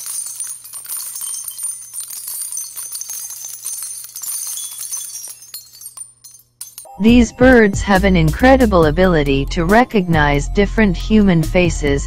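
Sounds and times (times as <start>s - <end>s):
small bells jingling: 0.0s - 8.9s.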